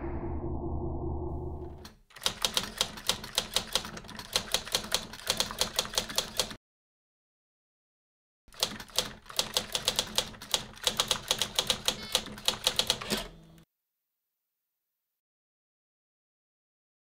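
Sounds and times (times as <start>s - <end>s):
low rumble: 0.0s - 1.8s
typewriter keystroke clicks: 1.8s - 6.6s, 8.5s - 13.4s.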